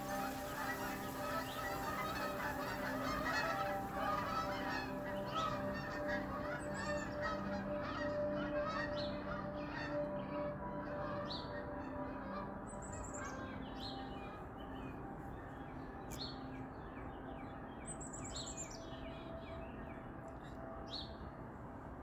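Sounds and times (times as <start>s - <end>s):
geese honking: 0.0s - 17.4s.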